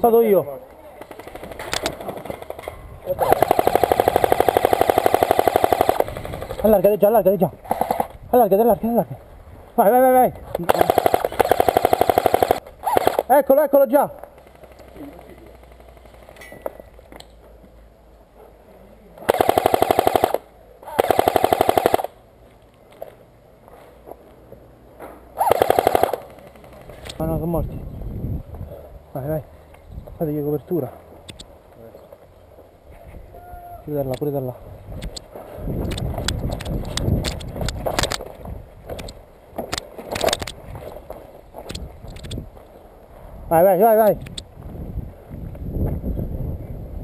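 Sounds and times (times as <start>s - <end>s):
airsoft rifle firing full auto: 3.2s - 6.8s, 7.6s - 8.1s, 10.7s - 13.2s, 19.3s - 22.2s, 25.4s - 26.9s.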